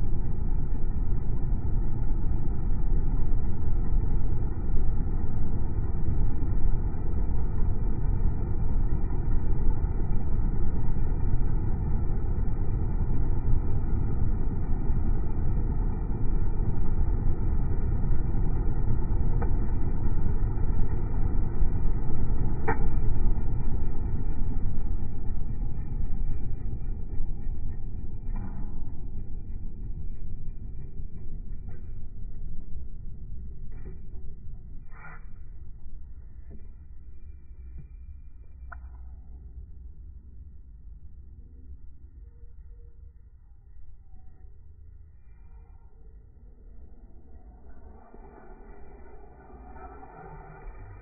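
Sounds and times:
electric heater fan running: 0.0 - 34.8.

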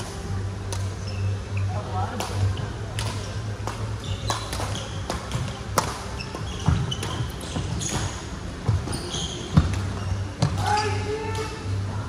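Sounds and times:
rackets hitting shuttlecock: 2.1 - 8.2.

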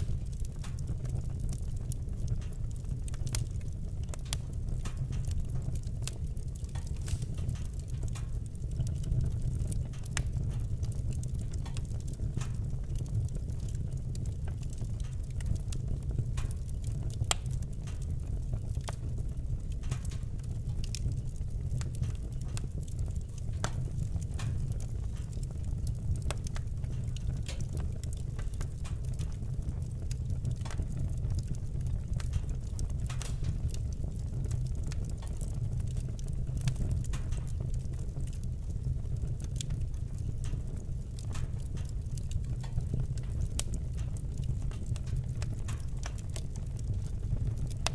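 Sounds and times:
low rumble of fire: 0.0 - 47.9
wood fire crackling: 0.0 - 47.9
sharp pops of fire: 6.1 - 10.7, 32.2 - 33.9.

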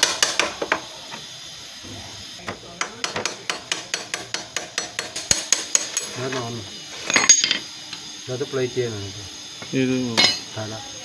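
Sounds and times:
hammer tapping on metal: 2.5 - 6.1.

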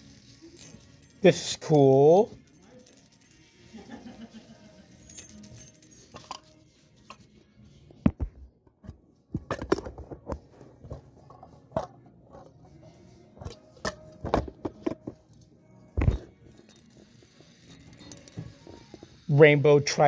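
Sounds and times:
faint music: 0.0 - 20.0
metal fidget spinner clicks: 16.7 - 20.0.

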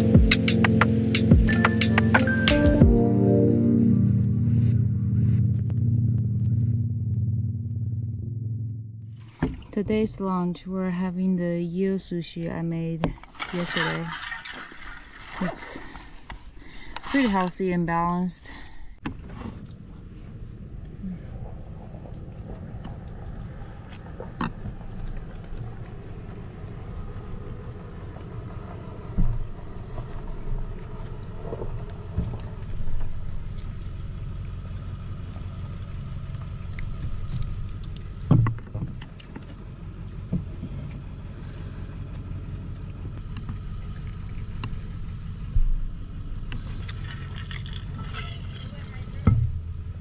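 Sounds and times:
wind buffeting microphone: 19.3 - 33.5.

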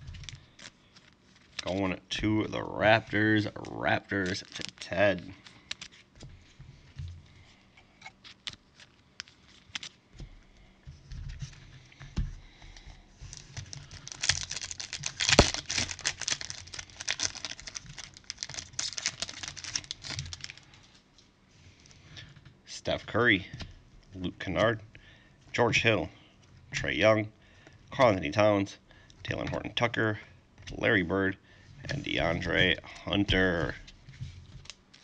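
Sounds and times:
foil wrapper crinkling: 0.0 - 1.8, 2.5 - 6.2, 8.0 - 10.6, 12.7 - 21.0.

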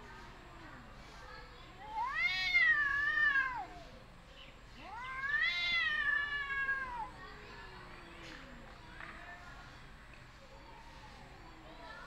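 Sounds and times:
cats yowling: 1.9 - 3.8, 4.8 - 7.2.

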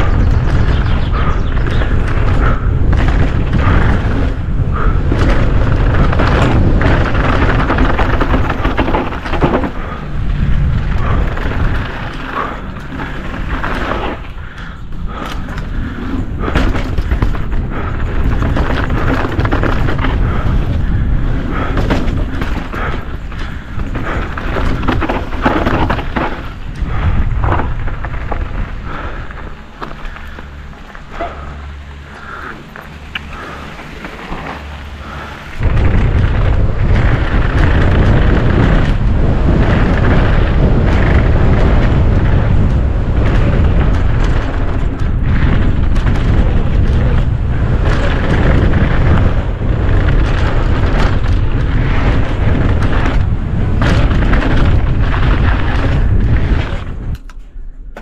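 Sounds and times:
bike rattling over bumps: 0.0 - 58.0
wind rumbling on microphone: 0.0 - 58.0.

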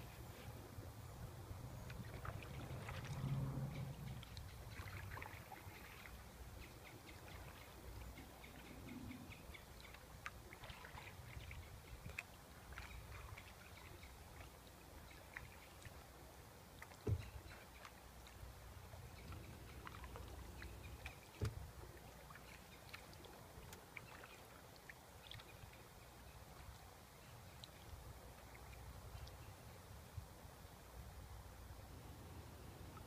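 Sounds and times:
small splashes: 1.9 - 8.3, 9.8 - 16.1, 16.7 - 26.9
water dripping off paddle: 1.9 - 9.0, 9.6 - 16.0, 16.7 - 26.9.

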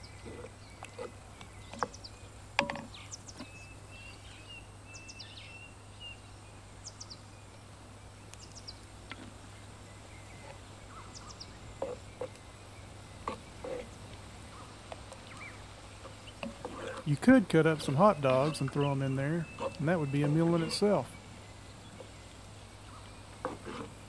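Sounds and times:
spoon stirring thick beans: 0.0 - 4.2, 9.0 - 24.0
small birds chirping: 0.0 - 24.0.

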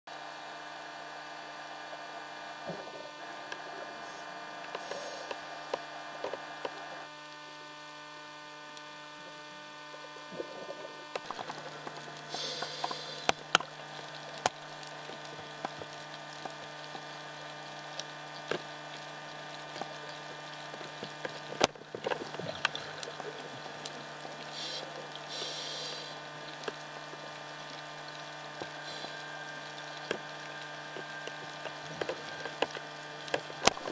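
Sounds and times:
camera electrical hum: 0.1 - 33.9
regulator breathing hiss: 4.0 - 5.8, 12.3 - 13.4, 24.5 - 26.2, 28.8 - 29.2.

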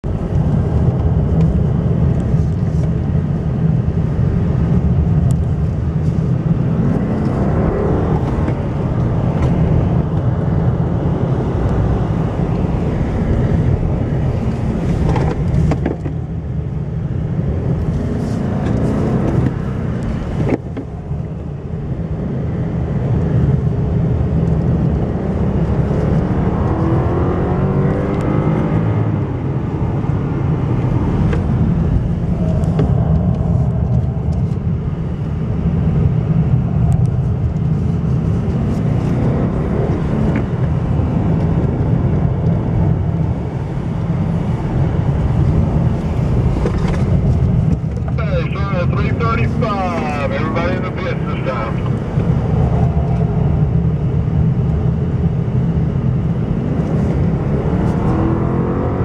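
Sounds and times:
car engine accelerating: 0.0 - 59.0.

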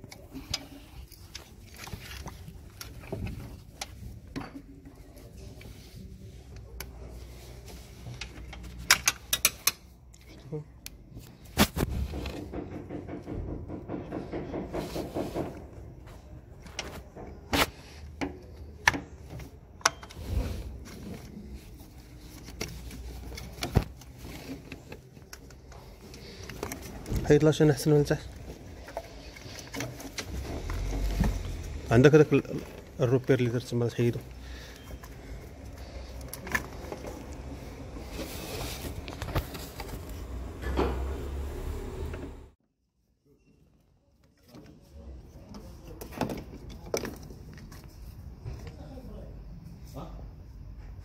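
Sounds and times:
clicks and knocks of tools: 8.0 - 11.0.

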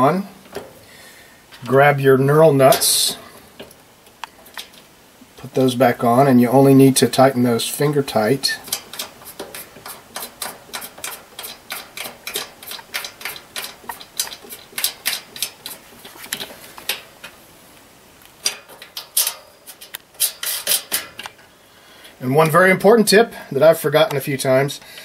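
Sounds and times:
nuts clicking on studs: 8.6 - 17.4.

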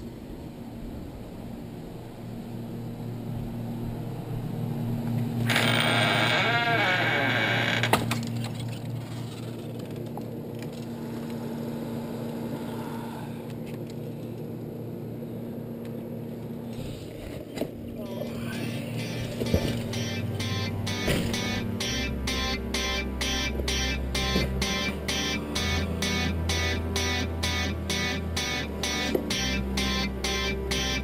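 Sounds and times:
steady low hum: 0.0 - 31.0
door scraping open: 5.5 - 9.8.

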